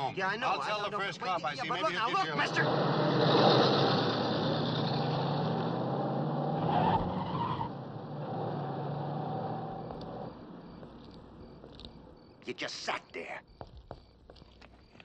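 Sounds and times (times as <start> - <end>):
car engine running: 7.7 - 12.3.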